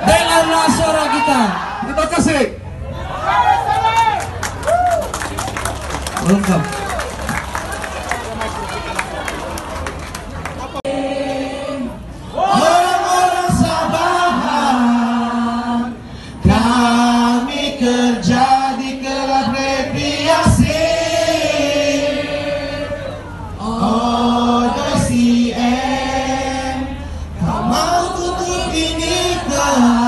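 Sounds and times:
crowd singing in unison: 10.6 - 30.0.

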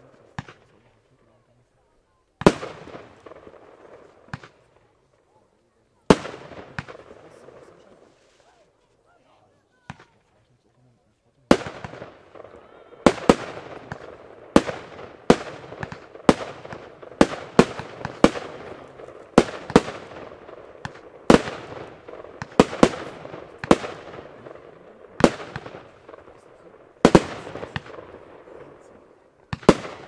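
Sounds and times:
firework bangs: 2.4 - 4.9, 6.0 - 8.5, 11.5 - 30.0.

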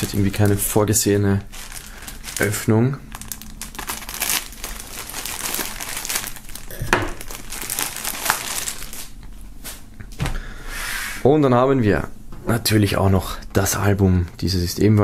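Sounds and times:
plastic foil crinkling: 0.0 - 9.2.

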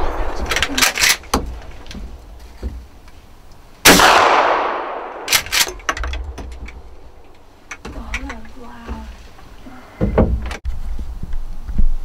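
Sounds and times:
gunshot: 3.9 - 5.4.

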